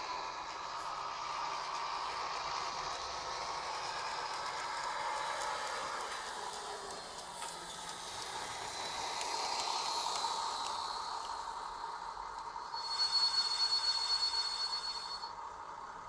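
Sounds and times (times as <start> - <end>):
high steady tone: 12.6 - 15.4.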